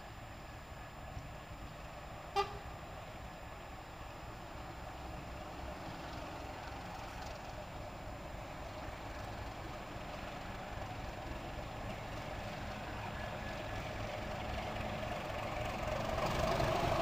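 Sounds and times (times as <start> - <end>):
diesel locomotive engine rumble: 0.0 - 17.0
short high horn toot: 2.3 - 2.7.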